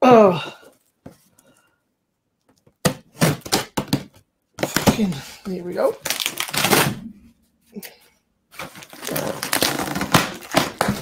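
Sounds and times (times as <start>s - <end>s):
cardboard box being ripped: 8.6s - 11.0s.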